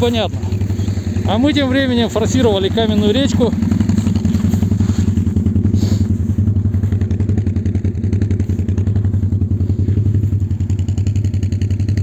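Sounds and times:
quad bike engine running: 0.0 - 12.0.

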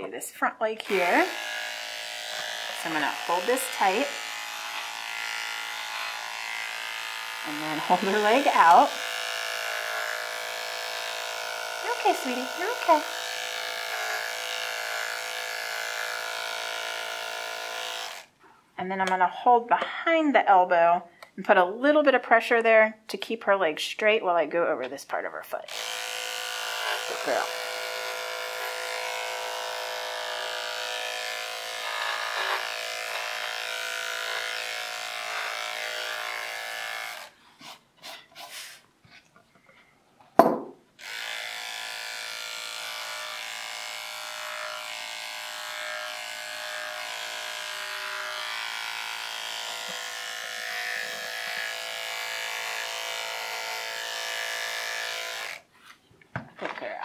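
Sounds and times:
electric clipper buzzing: 0.8 - 18.4, 25.6 - 37.4, 40.4 - 55.7
sharp knock: 40.4 - 40.8.

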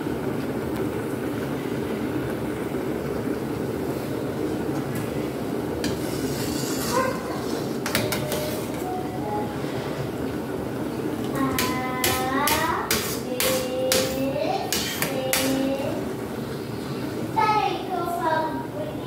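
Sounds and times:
metal ladle scraping a pan: 5.9 - 8.7.

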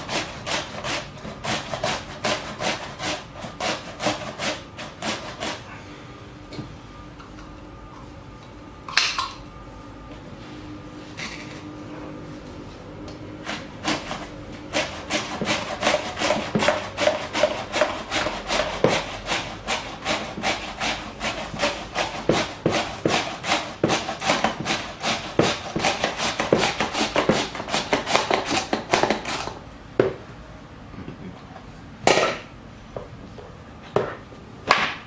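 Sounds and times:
vegetable scraping on mandoline slicer: 0.0 - 5.6, 13.4 - 29.6.

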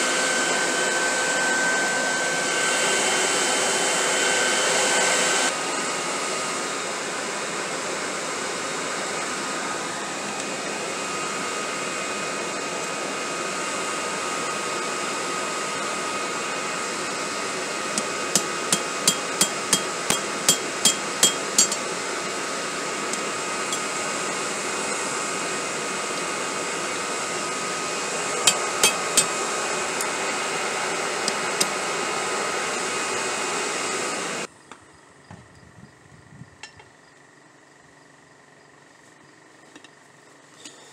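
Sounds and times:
electric leaf blower running: 0.0 - 34.5
hammer ringing on steel anvil: 18.3 - 21.8, 28.5 - 29.3.

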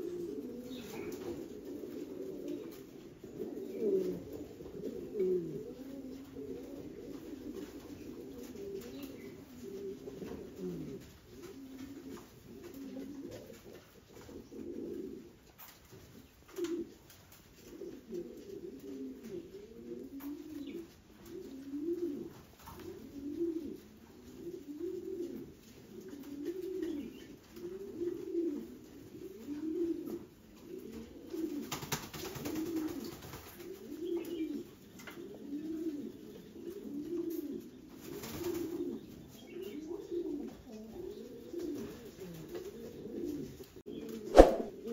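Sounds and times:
pigeons cooing: 0.0 - 44.9
brief rustling: 44.3 - 44.7.

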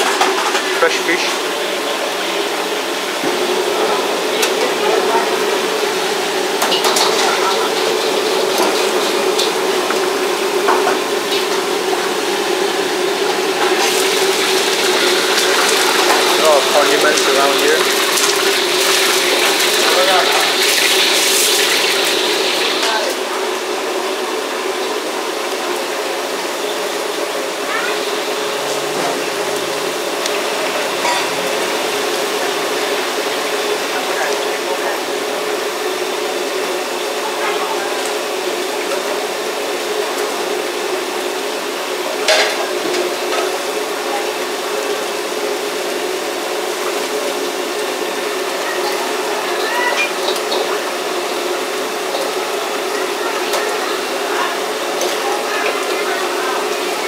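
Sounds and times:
food frying in wok: 0.0 - 57.0
gas wok burner rushing: 0.0 - 57.0
fish sizzling in hot oil: 0.1 - 57.0
murmur of voices: 47.1 - 57.0.

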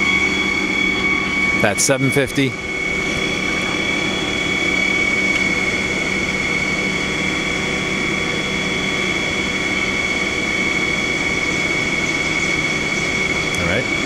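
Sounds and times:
lathe spindle whining: 0.0 - 14.0.

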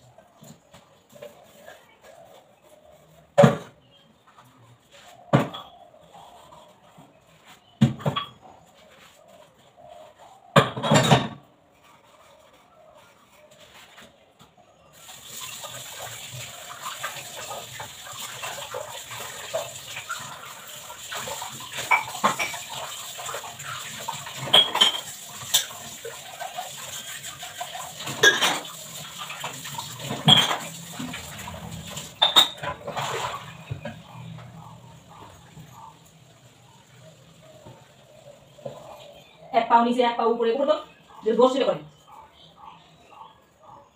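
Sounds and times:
running kitchen tap: 15.0 - 38.8
metal utensils clinking in sink: 21.1 - 34.4.

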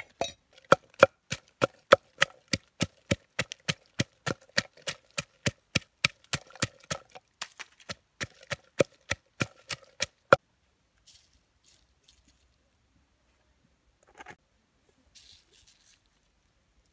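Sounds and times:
pestle pounding in wooden mortar: 0.0 - 10.4.

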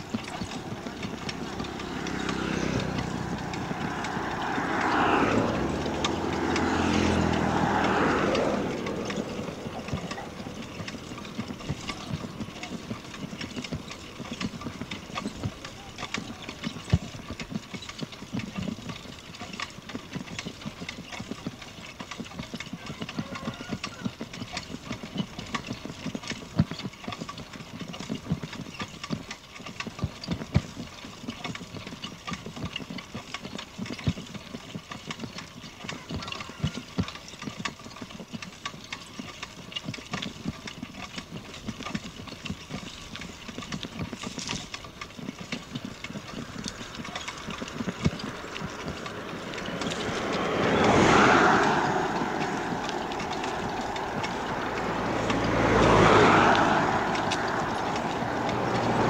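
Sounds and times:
bicycle rattling: 0.0 - 59.0
road noise: 0.0 - 59.0.

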